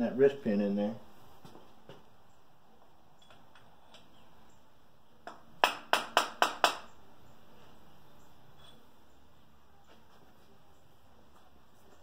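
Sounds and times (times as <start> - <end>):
sharp knocks on metal: 5.2 - 6.9.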